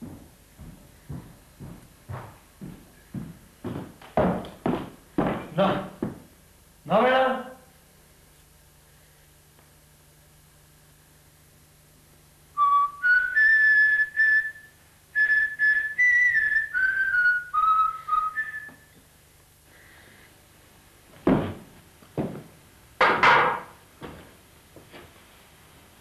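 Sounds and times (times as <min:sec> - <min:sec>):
person whistling a tune: 0:12.6 - 0:19.0
sharp knocks: 0:21.3 - 0:22.4, 0:23.0 - 0:23.8.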